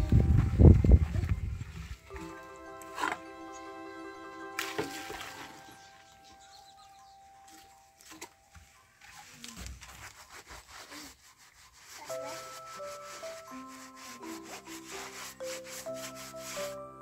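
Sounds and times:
hands scrubbing clay pot: 0:09.1 - 0:16.8.

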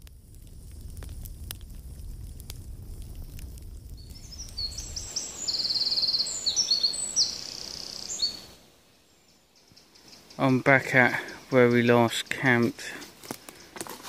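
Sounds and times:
low rumble: 0:00.0 - 0:05.3
songbird trilling: 0:04.0 - 0:08.6, 0:09.3 - 0:12.6.

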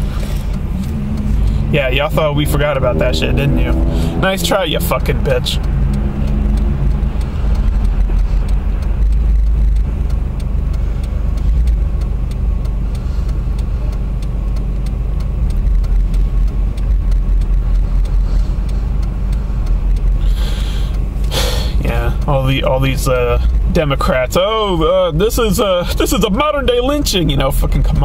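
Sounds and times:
car engine rumble: 0:00.0 - 0:28.0
road noise: 0:00.0 - 0:28.0
faint ticks: 0:04.1 - 0:21.3.

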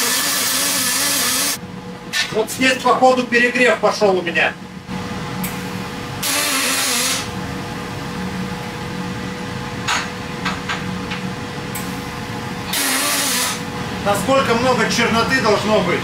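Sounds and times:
welding arc buzzing: 0:00.0 - 0:01.6, 0:06.2 - 0:07.4, 0:11.9 - 0:13.8
constant hum: 0:00.0 - 0:16.0.

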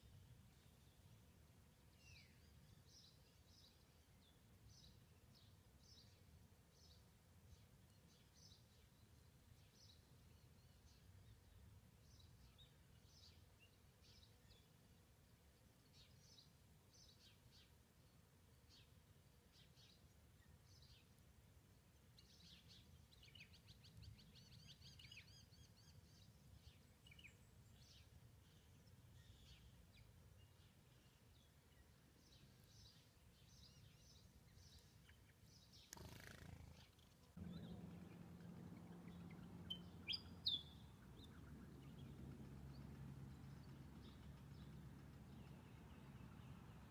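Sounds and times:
faint bird chirps: 0:22.2 - 0:46.9
low steady hum: 0:36.5 - 0:46.9
low background rumble: 0:37.3 - 0:46.9
high bird chirps: 0:38.8 - 0:42.2.

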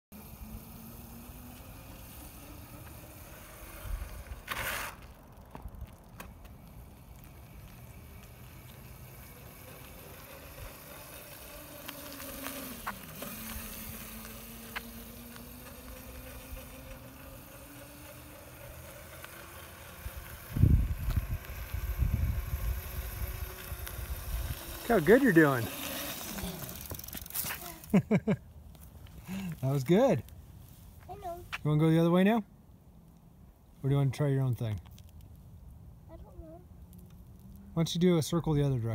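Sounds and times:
electric motor whining: 0:00.2 - 0:05.0, 0:07.9 - 0:27.9.

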